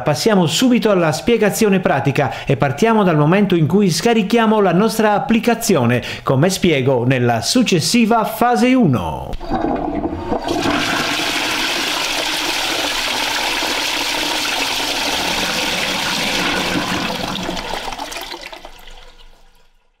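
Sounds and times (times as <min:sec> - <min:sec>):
toilet flushing: 0:09.4 - 0:20.0.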